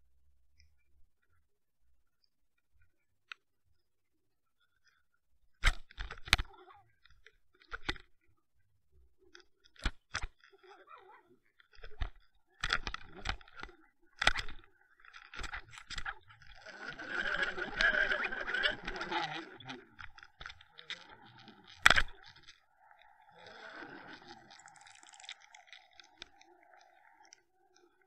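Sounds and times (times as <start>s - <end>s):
knocks and scrapes underwater: 9.4s - 10.8s, 11.5s - 28.0s.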